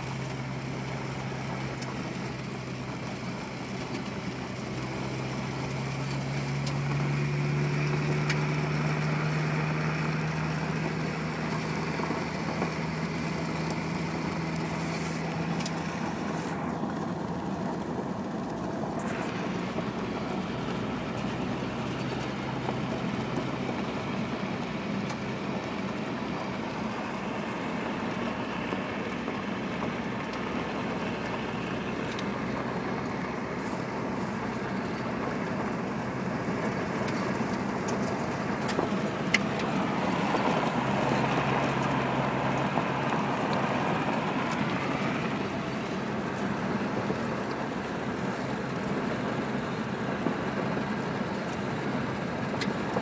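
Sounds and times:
vehicle road noise from cabin: 0.0s - 53.0s.

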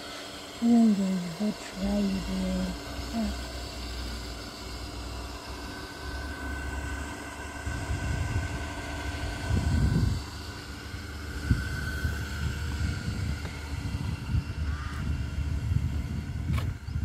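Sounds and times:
wind buffeting microphone: 7.6s - 17.0s.

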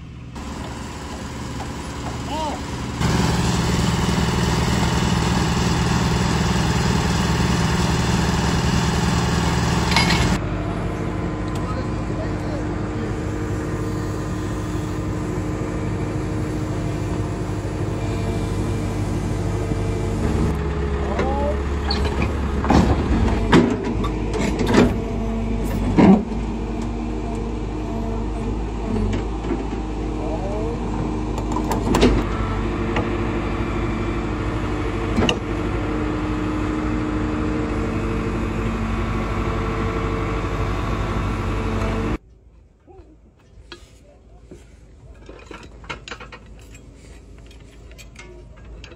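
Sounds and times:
excavator diesel engine droning: 0.0s - 42.2s.

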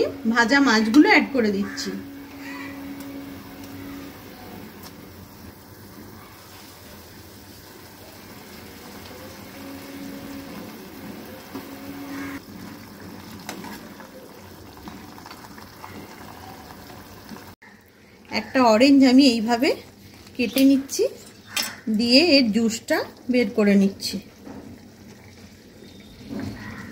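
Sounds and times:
gravy bubbling in a frying pan: 12.1s - 19.1s, 23.0s - 26.9s.

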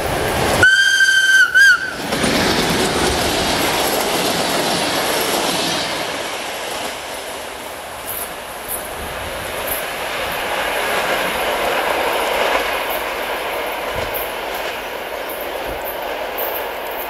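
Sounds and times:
train coaches rushing past: 0.0s - 17.0s
locomotive whistle: 0.6s - 2.1s.

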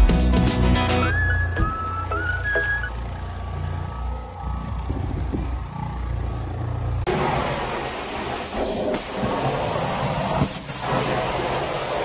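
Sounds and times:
carpet scrubber motor hum: 1.1s - 9.8s.

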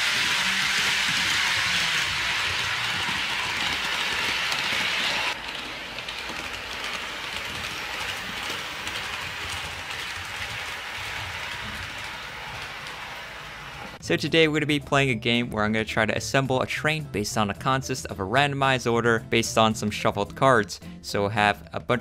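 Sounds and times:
model train wheels rattling on rail: 0.0s - 14.0s.

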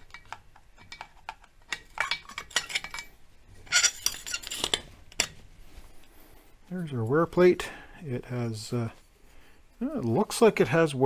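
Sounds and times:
hand tool clinking on metal: 3.7s - 5.3s.

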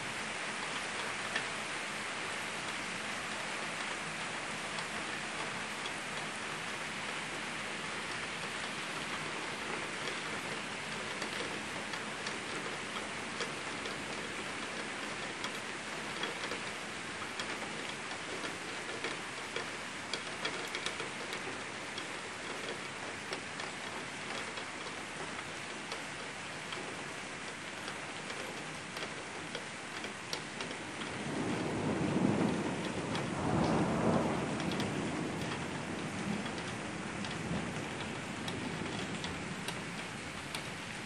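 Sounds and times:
sharp raindrop ticks: 0.5s - 41.0s
heavy rain hissing: 30.1s - 41.0s.

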